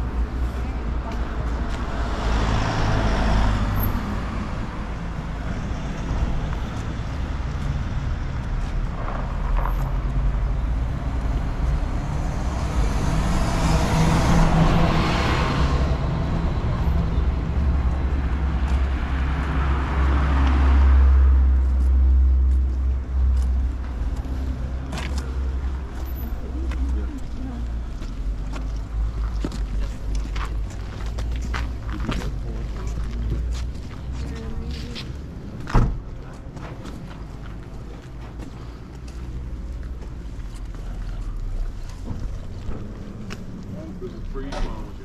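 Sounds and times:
bus driving past: 0.0 - 45.0
vehicles passing on wet street: 0.0 - 45.0.

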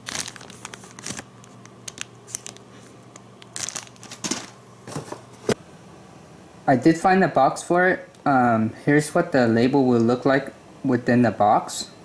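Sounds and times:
plastic bag crinkling: 0.0 - 4.6.

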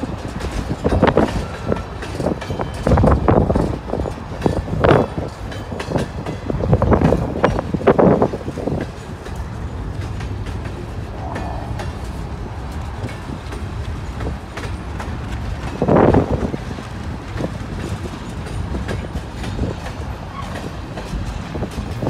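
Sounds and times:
freight train wheels rumbling: 0.0 - 22.0.

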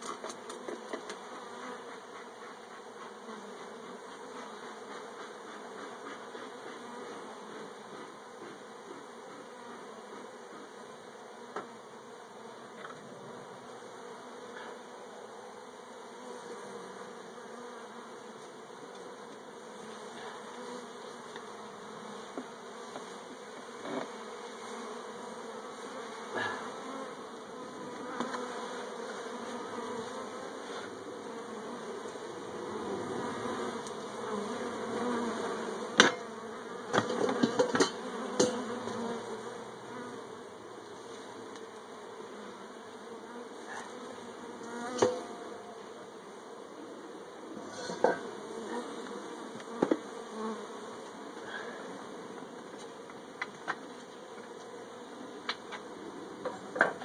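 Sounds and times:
bees buzzing: 0.0 - 57.0.

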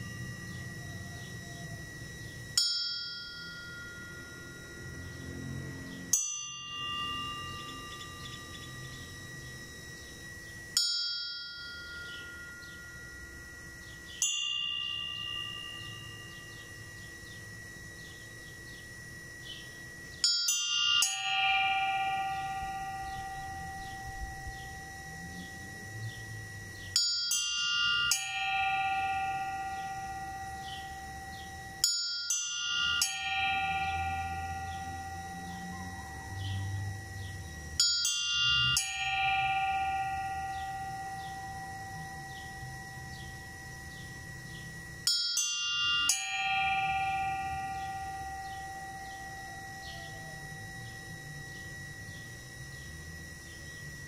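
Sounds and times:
church bells tolling: 20.2 - 52.4.

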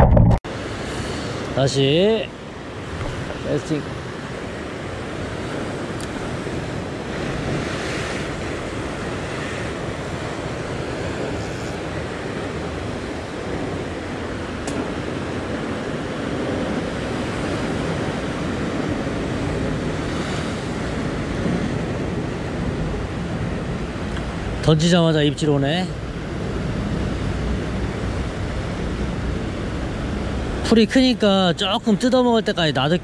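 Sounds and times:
wind rumbling on microphone: 0.0 - 1.6, 2.4 - 30.8
surf washing against rocks: 0.5 - 33.0.

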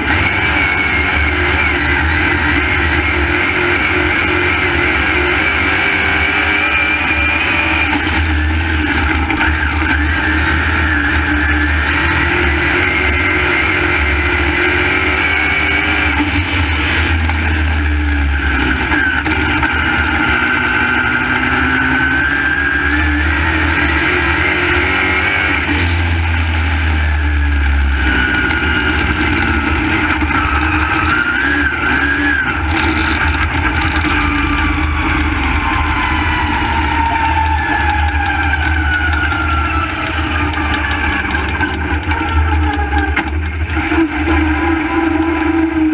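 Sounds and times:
race car engine revving: 0.0 - 45.9.

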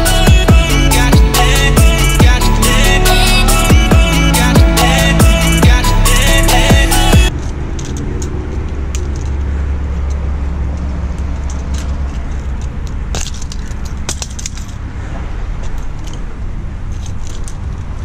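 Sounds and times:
metal pliers clicking and jingling: 7.3 - 14.9.

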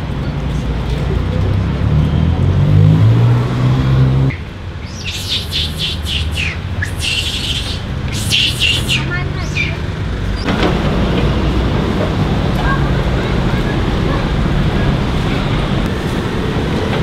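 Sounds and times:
vehicle engine humming: 0.0 - 17.0
monkeys screeching: 4.8 - 9.9.

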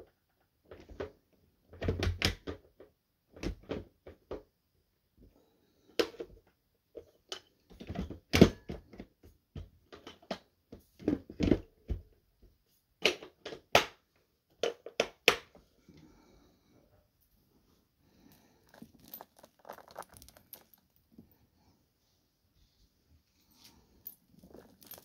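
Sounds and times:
sharp crunches and clacks: 18.6 - 21.0.

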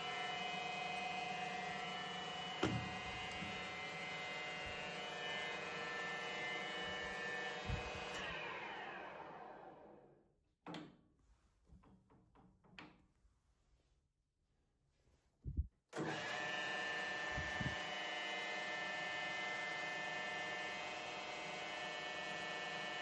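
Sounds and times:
lathe whining and winding down: 0.0 - 10.1, 16.0 - 23.0.

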